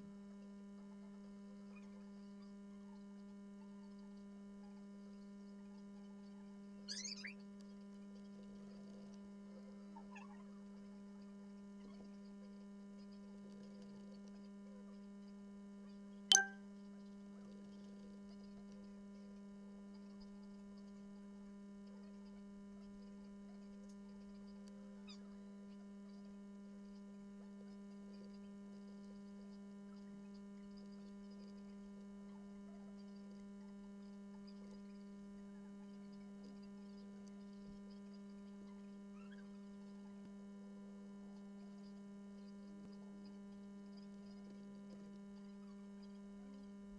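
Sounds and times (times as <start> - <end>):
sharp click: 16.3 - 16.6.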